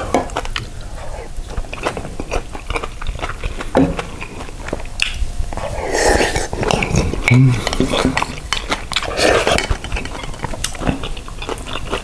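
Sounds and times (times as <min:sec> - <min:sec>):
man chewing food: 0:00.0 - 0:12.0
wet mouth clicks: 0:05.0 - 0:10.8.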